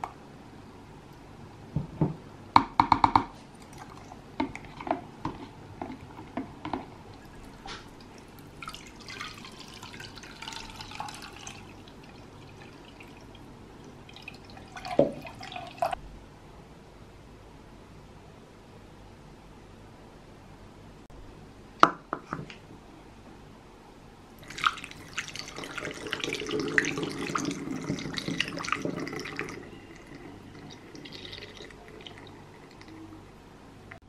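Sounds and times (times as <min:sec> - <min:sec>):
liquid pouring through strainer: 0:07.1 - 0:13.4, 0:14.1 - 0:16.0, 0:24.4 - 0:33.1.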